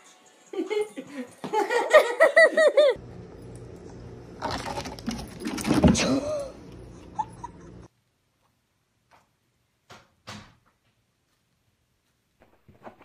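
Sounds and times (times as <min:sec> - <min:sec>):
person laughing in high bursts: 0:00.6 - 0:03.0.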